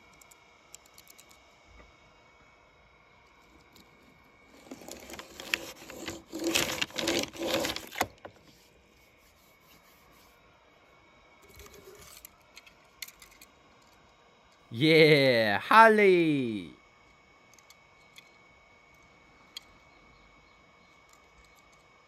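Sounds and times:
toy car scraping and rubbing: 0:04.6 - 0:08.1.

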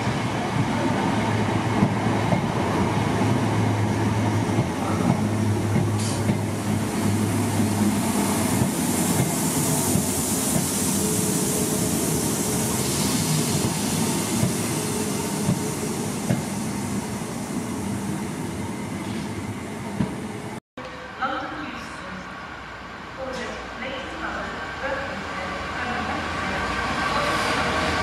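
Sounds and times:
train wheels running on rails: 0:00.0 - 0:16.6, 0:18.8 - 0:20.6.

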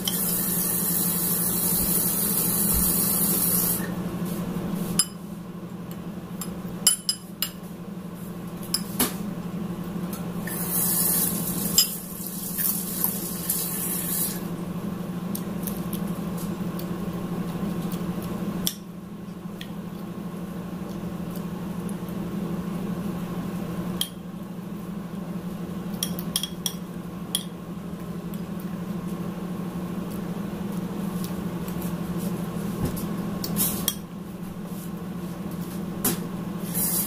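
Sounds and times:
steady low hum: 0:00.0 - 0:37.0
hiss: 0:36.6 - 0:37.0.

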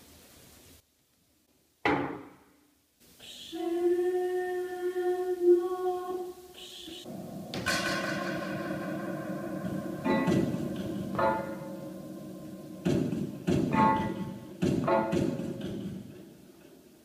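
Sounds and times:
fuller pitched sound: 0:07.0 - 0:17.0
long held synth note: 0:07.1 - 0:14.6
sudden knock: 0:07.1 - 0:16.3.

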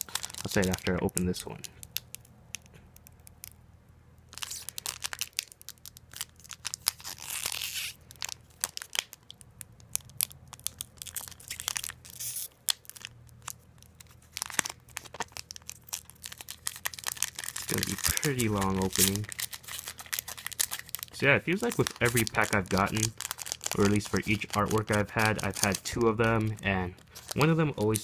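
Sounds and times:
wrapper ripping tear: 0:00.0 - 0:02.2, 0:04.3 - 0:28.0
foil wrapper crackling: 0:00.0 - 0:03.6, 0:04.3 - 0:28.0.

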